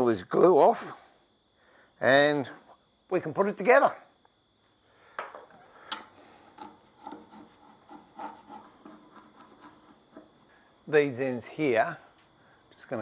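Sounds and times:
chisel scraping glue off wood: 6.6 - 10.4.

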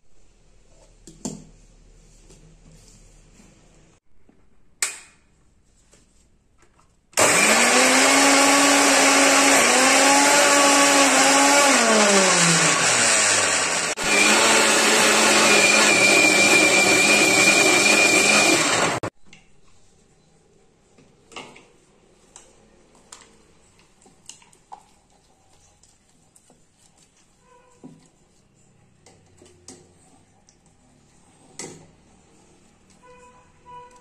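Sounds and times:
mixer grinder motor churning: 7.2 - 19.1.

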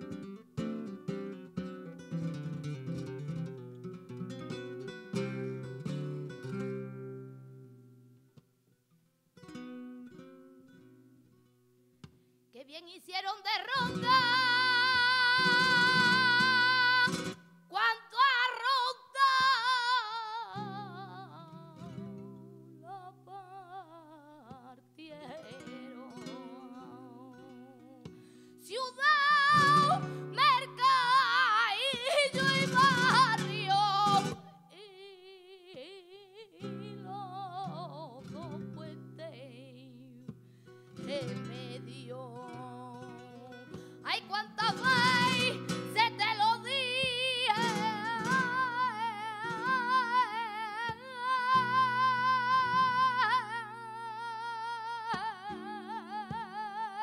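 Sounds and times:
flamenco guitar: 0.0 - 57.0
woman singing: 12.6 - 57.0.

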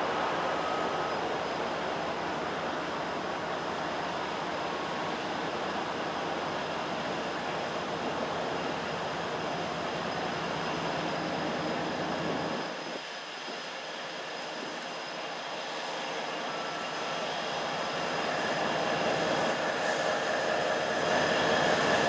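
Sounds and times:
diesel locomotives rumbling: 0.0 - 13.0.

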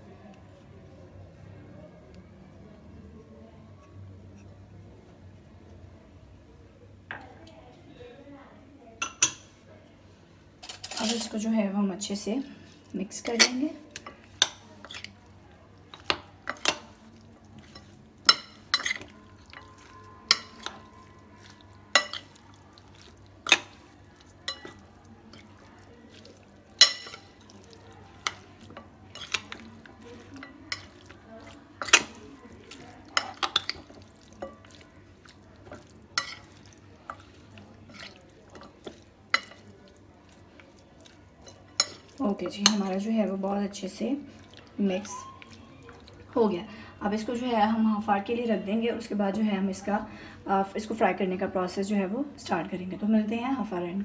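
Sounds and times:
metal spoon clinking on glass bowl: 17.7 - 21.1.

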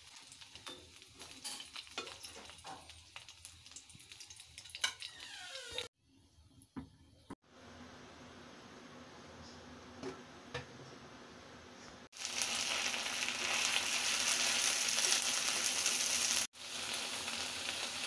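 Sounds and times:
garlic sizzling in hot oil: 0.0 - 5.9, 12.1 - 18.0.

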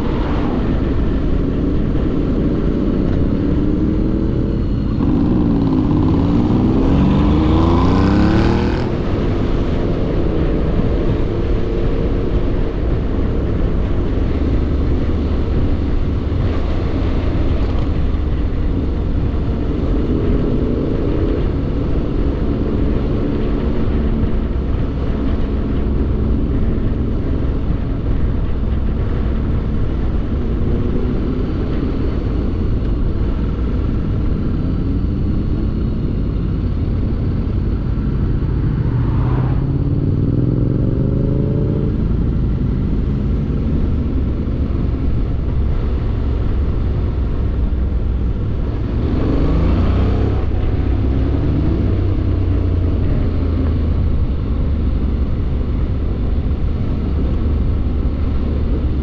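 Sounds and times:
motorcycle engine accelerating: 0.0 - 59.0
wind and road noise: 0.0 - 59.0.

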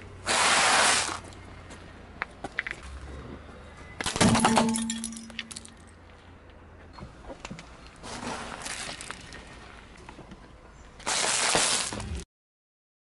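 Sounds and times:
car tyre crushing brittle object: 11.0 - 12.2.

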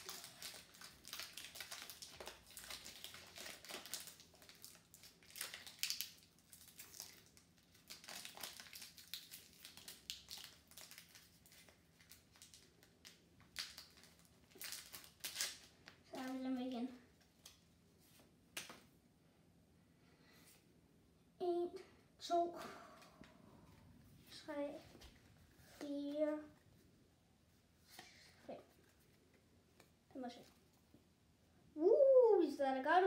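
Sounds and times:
foil wrapper crinkling: 0.0 - 16.4.

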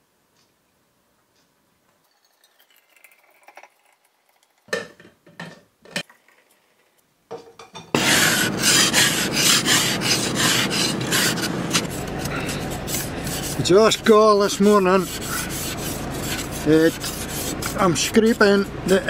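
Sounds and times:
ice scraper rasping on windscreen: 8.0 - 19.0.

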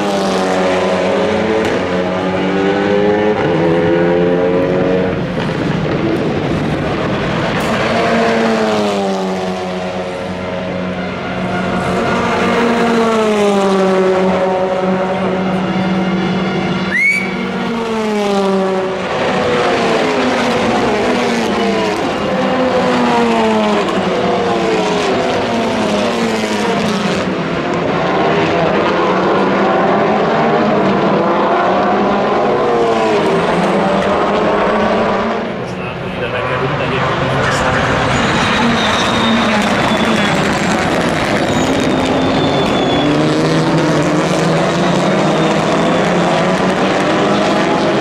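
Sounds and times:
racing car engines revving: 0.0 - 48.0
brief sharp squeak: 38.1 - 40.5, 41.3 - 43.3.

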